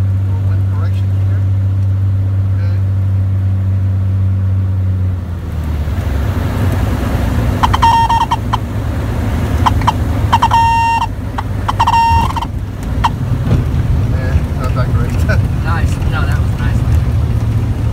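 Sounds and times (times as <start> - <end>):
aircraft engine drone: 0.0 - 13.2
stall warning horn beeps: 7.5 - 13.2.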